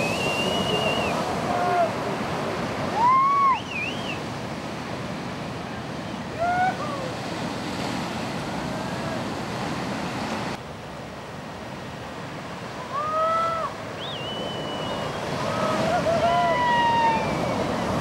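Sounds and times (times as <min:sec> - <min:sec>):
ocean surf breaking: 0:00.0 - 0:18.0.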